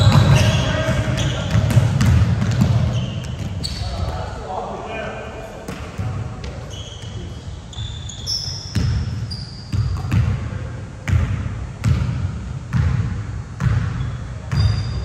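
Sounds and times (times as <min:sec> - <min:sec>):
basketball dribbling: 0:00.0 - 0:04.2, 0:08.7 - 0:10.4
sneaker squeaks: 0:00.0 - 0:04.4, 0:05.3 - 0:10.4, 0:13.6 - 0:15.0.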